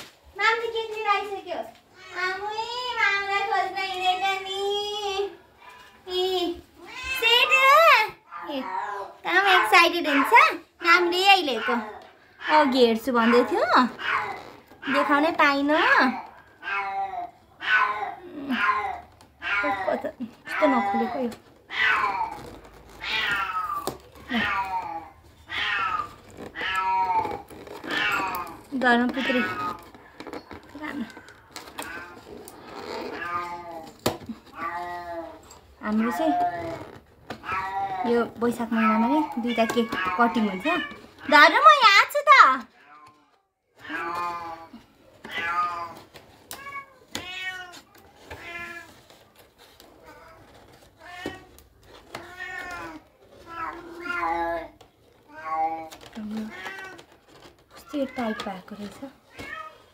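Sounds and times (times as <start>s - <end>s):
cat meowing: 11.5s - 15.1s, 16.1s - 28.6s, 42.8s - 49.0s.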